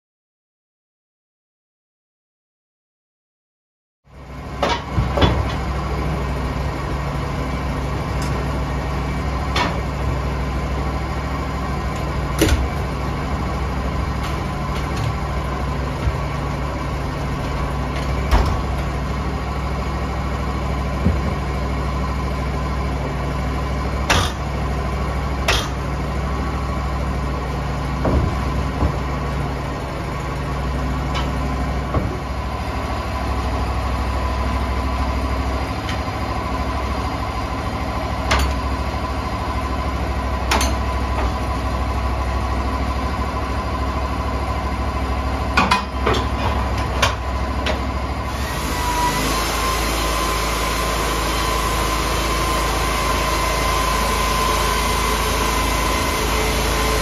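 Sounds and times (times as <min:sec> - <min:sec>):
low machine hum: 0:04.1 - 0:57.0
logs knocking and thudding: 0:20.9 - 0:21.5, 0:27.9 - 0:29.5.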